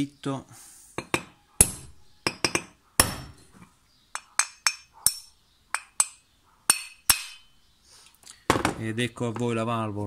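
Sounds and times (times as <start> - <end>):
hammer tapping metal: 1.0 - 3.4, 4.1 - 7.5.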